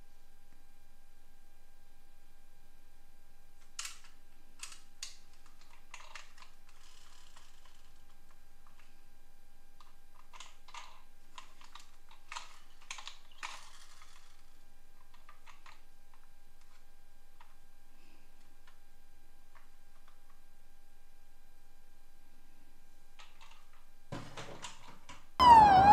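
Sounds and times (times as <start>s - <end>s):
plastic toys clicking and knocking: 3.8s - 8.1s, 10.2s - 16.8s, 23.2s - 25.2s.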